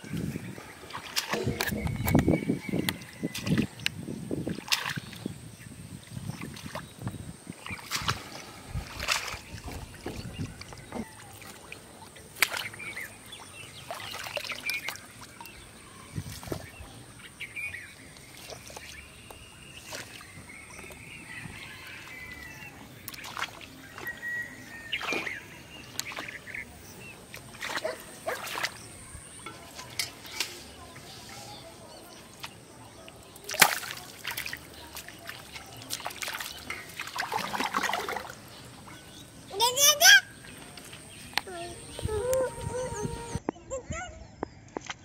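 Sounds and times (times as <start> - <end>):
water splashes and flicks: 0.0 - 43.6
birds calling faintly: 0.0 - 45.0.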